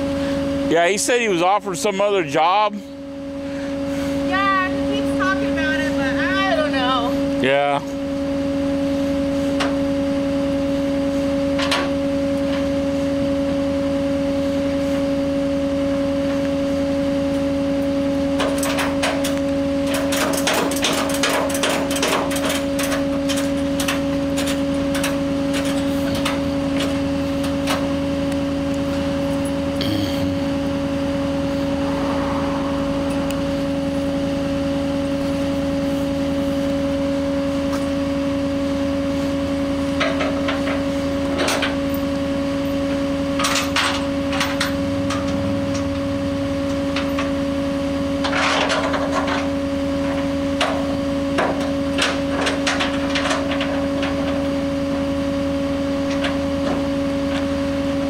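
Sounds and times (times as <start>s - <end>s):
hydraulics humming: 0.0s - 58.0s
metallic clanks and rattles: 19.9s - 27.0s.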